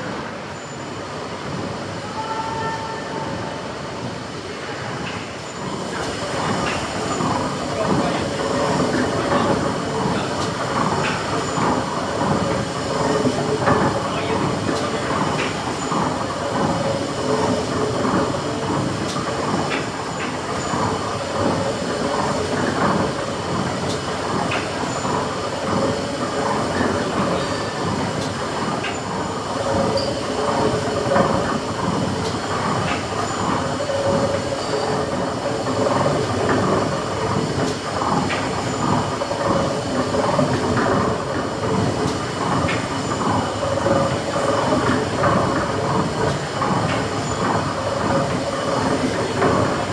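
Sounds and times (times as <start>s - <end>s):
steam engine clattering: 5.1s - 49.9s.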